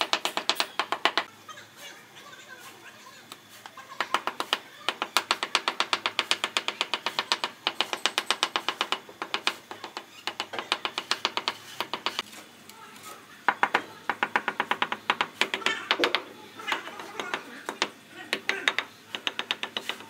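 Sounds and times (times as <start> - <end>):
hammer handle tapping on tiles: 0.0 - 1.3, 4.0 - 12.2, 13.5 - 20.0.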